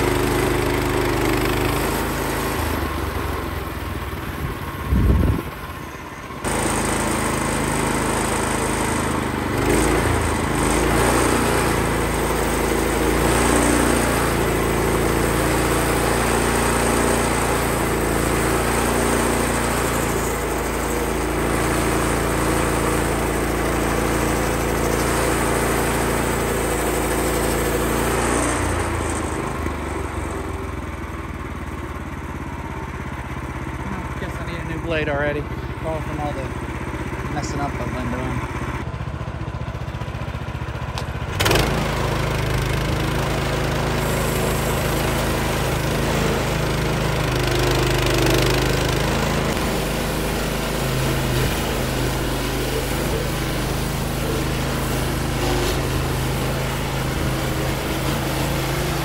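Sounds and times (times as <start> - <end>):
sawmill engine running: 0.0 - 59.0
saw blade cutting wood: 6.4 - 30.4, 41.0 - 59.0.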